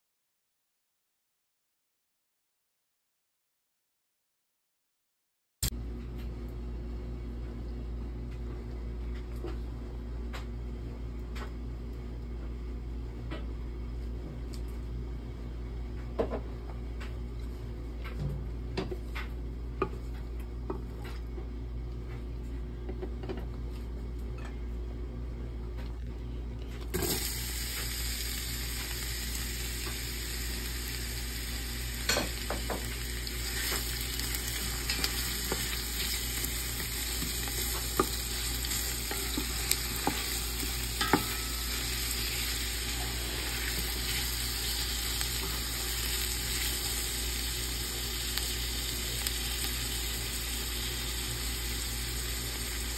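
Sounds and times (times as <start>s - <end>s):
onions sizzling in hot oil: 26.9s - 52.9s.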